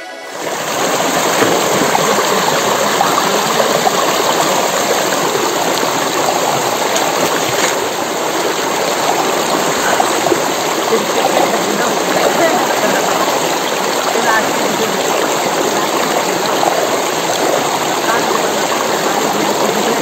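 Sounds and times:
stream water rushing: 0.0 - 20.0
people diving and splashing: 0.1 - 20.0.

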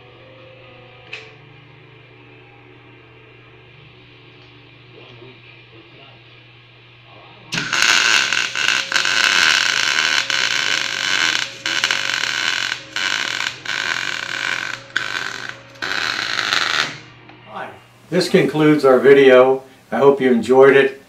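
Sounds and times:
welding arc burning: 7.5 - 17.1.

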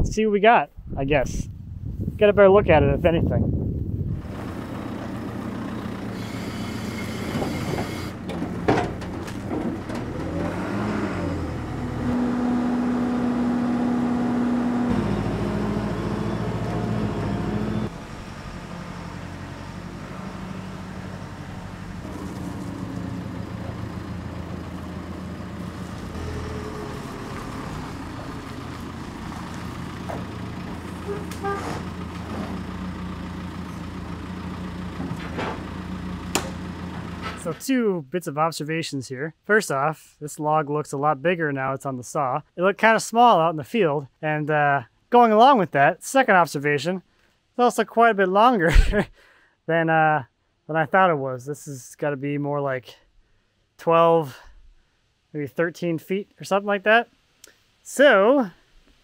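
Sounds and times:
diesel engine running: 4.0 - 37.6.

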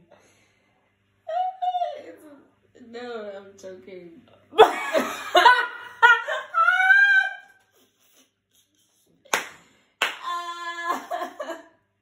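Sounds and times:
women laughing: 4.6 - 9.2, 10.3 - 11.7
hand clap: 9.3 - 10.4.

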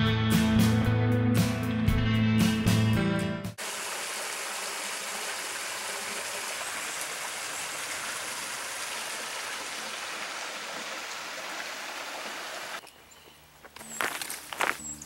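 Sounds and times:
running spring water: 3.6 - 12.9.

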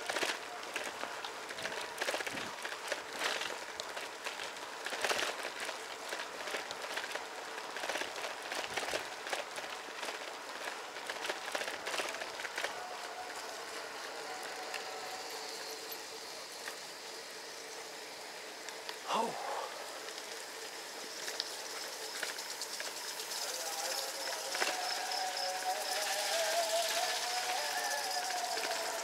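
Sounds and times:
bicycle clicks and rattles: 0.0 - 19.0, 20.0 - 29.0
wind while cycling: 0.0 - 24.8
faint call to prayer: 11.2 - 16.5, 19.1 - 20.1, 23.3 - 29.0.

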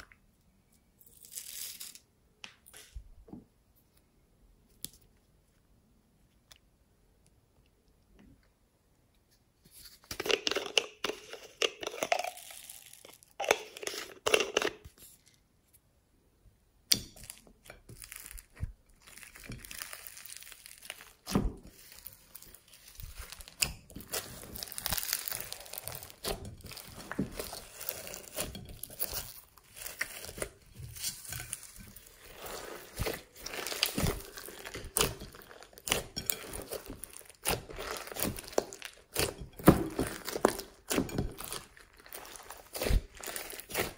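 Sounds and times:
slime crackling and squelching: 17.1 - 43.9.

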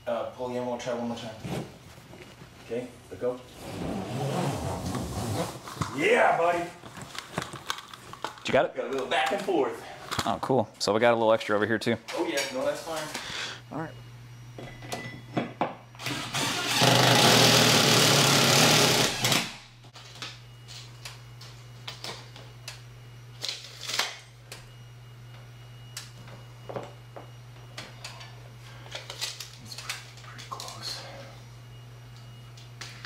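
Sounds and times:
cordless drill driving screw: 16.0 - 19.6.

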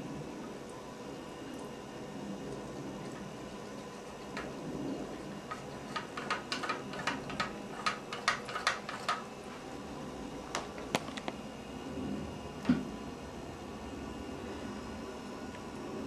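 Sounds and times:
cat lapping water: 1.6 - 9.2.

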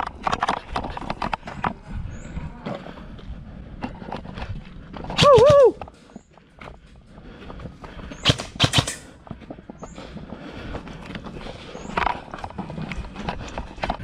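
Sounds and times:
sharp loud clicks: 8.2 - 9.1.

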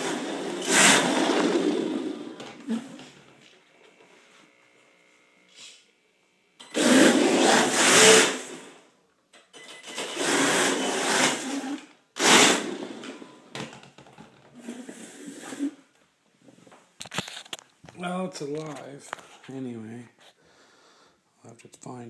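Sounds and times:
toy car electric motor whirring: 0.0 - 2.8, 6.6 - 8.5, 9.9 - 12.6.

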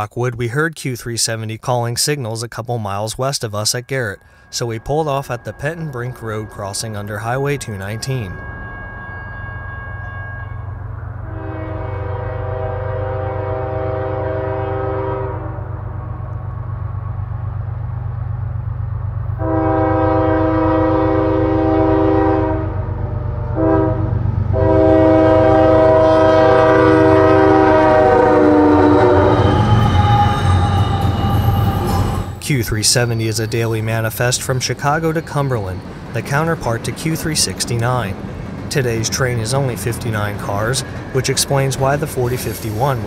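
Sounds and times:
train horn blasts: 4.1 - 16.5, 19.4 - 32.2.

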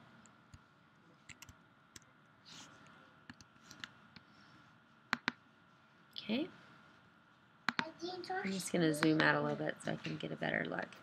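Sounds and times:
keyboard and mouse clicks: 1.3 - 2.1, 5.1 - 5.4, 7.7 - 7.9.

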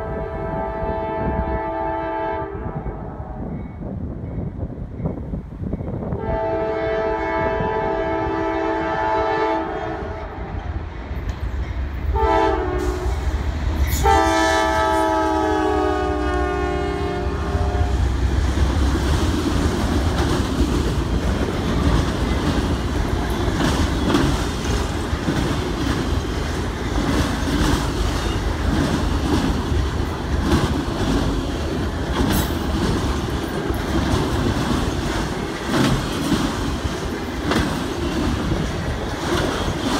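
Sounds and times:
train air horn blasts: 0.0 - 3.5, 6.2 - 10.5, 12.1 - 18.1
train wheels clacking on rails: 18.0 - 39.9.

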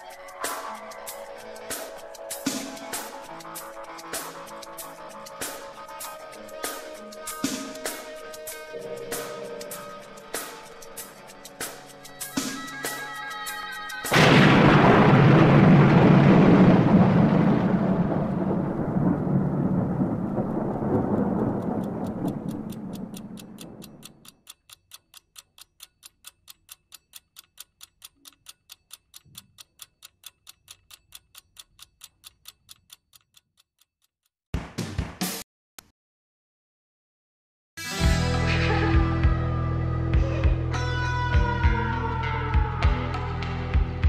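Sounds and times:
clock-like ticking: 0.0 - 14.5, 19.1 - 34.4
thunder-like crash rumbling: 14.1 - 23.4.

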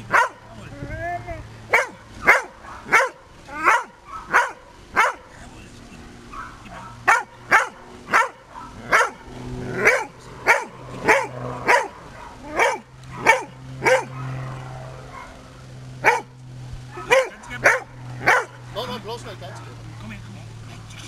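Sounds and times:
dog barking: 0.0 - 0.5, 1.7 - 5.4, 6.3 - 14.5, 15.1 - 15.4, 16.0 - 16.3, 16.9 - 18.9.

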